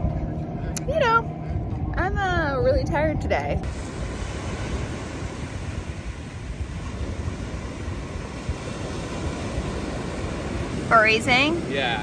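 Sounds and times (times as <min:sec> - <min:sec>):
wind buffeting microphone: 0:00.0 - 0:12.0
surf washing onto beach: 0:03.6 - 0:12.0.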